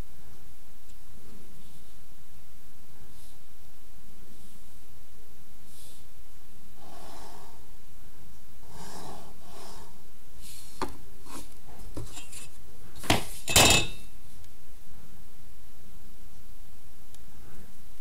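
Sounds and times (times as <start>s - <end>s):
set square knocking and scraping: 10.8s - 14.0s.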